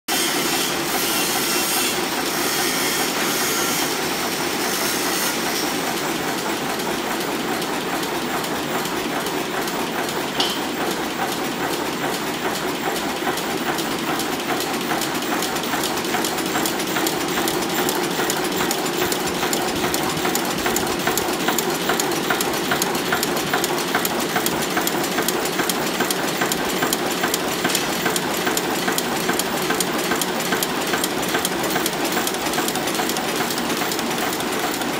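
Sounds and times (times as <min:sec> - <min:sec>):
heading machines clattering: 0:05.7 - 0:34.9.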